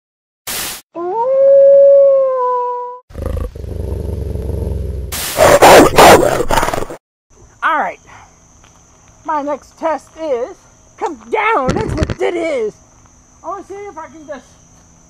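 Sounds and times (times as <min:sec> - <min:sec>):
harsh noise bursts: 0:00.5 - 0:00.8, 0:05.1 - 0:06.6
wolf howl: 0:01.0 - 0:03.0.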